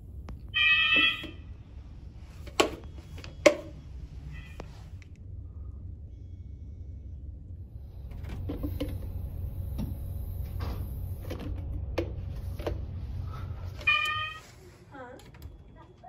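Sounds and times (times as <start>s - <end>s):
steady low hum: 0.0s - 16.0s
horn-like alarm tone: 0.6s - 1.5s.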